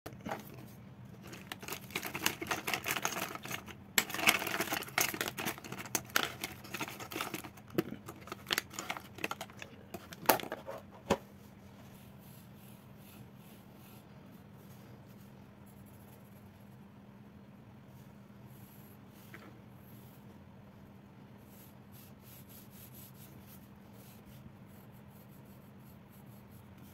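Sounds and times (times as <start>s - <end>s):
pens and pencils clattering on desk: 0.1s - 11.2s.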